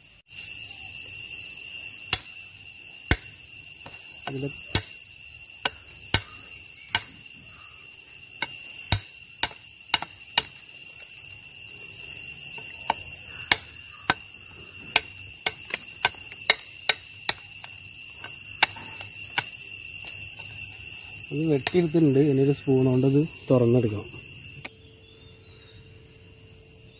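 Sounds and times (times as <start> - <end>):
steady high-pitched whine: 0.0 - 26.9
machete chopping coconut husk: 2.1 - 7.3, 8.4 - 10.7, 12.6 - 20.8, 21.5 - 21.9.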